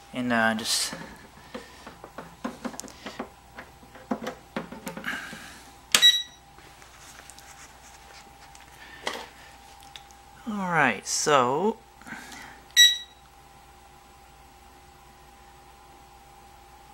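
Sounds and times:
short electronic beep: 0:06.0 - 0:06.4, 0:12.8 - 0:13.2.

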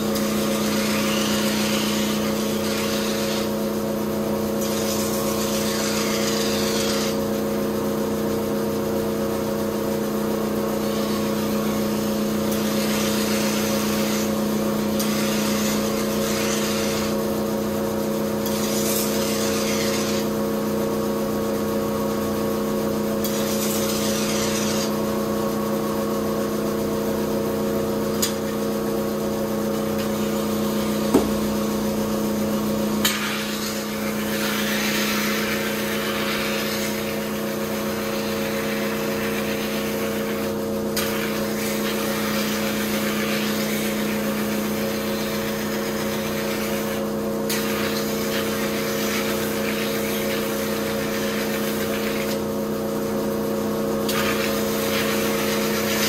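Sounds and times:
knock: 0:31.1 - 0:31.5.

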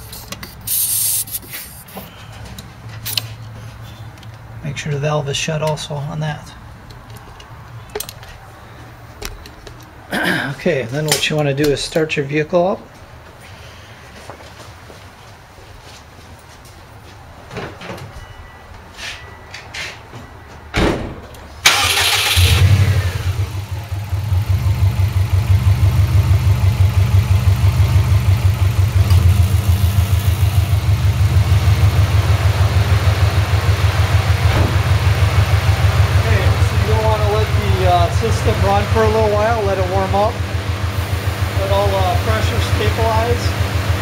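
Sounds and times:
car engine starting and idling: 0:21.6 - 0:44.0.

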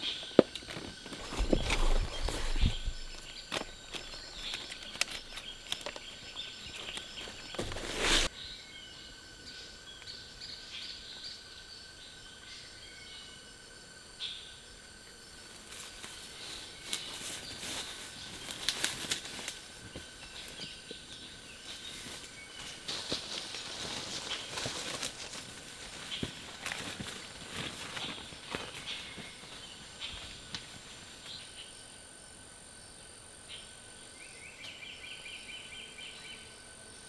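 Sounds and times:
birds chirping: 0:00.0 - 0:13.4
clicks and rustles: 0:00.4 - 0:08.3.

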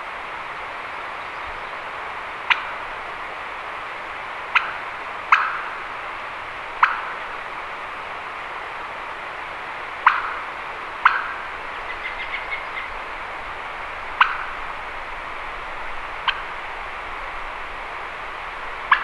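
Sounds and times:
steady rushing noise: 0:00.0 - 0:19.0
turkey gobbling: 0:05.3 - 0:05.6, 0:10.0 - 0:10.3, 0:11.0 - 0:12.9, 0:14.2 - 0:14.4, 0:16.2 - 0:16.4.

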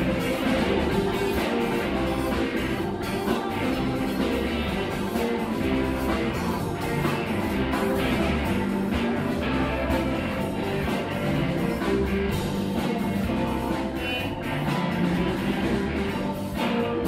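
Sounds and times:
live rock band playing: 0:00.0 - 0:17.0.

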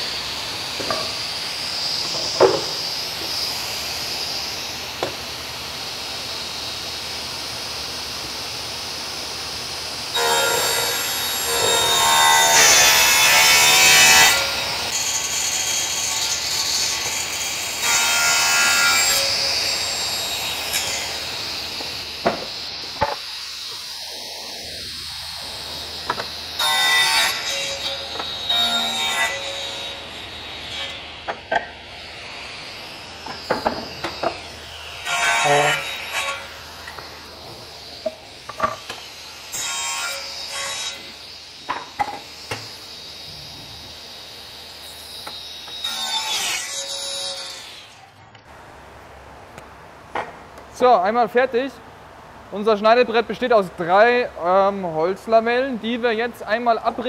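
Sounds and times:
power saw cutting wood: 0:00.0 - 0:48.0.

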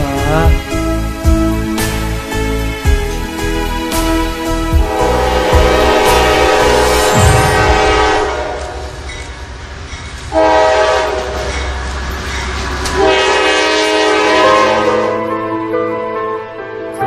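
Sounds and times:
passing train rumble: 0:00.0 - 0:17.0
train horn blasts: 0:04.8 - 0:09.1, 0:10.3 - 0:11.7, 0:12.9 - 0:15.4.

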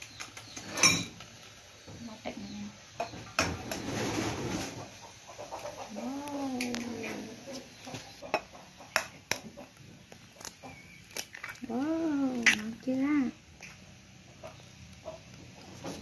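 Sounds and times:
egg cracking on bowl rim: 0:08.3 - 0:12.9.

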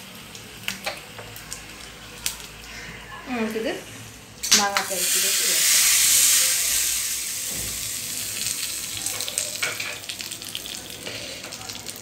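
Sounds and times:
hot oil sizzling: 0:00.0 - 0:12.0
crackles: 0:00.2 - 0:02.9.

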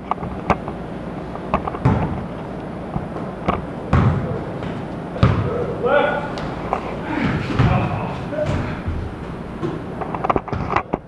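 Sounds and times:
feet on indoor court floor: 0:00.0 - 0:11.0
basketball bouncing: 0:01.5 - 0:02.4, 0:03.1 - 0:05.8, 0:07.1 - 0:11.0
heavy low thuds: 0:07.1 - 0:09.9.

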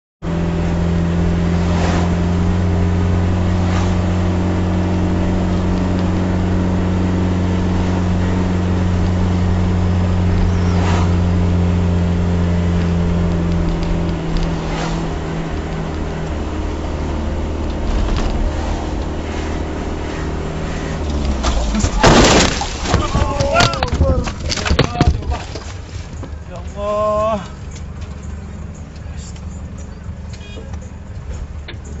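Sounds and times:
truck engine and road noise: 0:00.2 - 0:32.0
passing traffic whooshes: 0:00.5 - 0:22.0.

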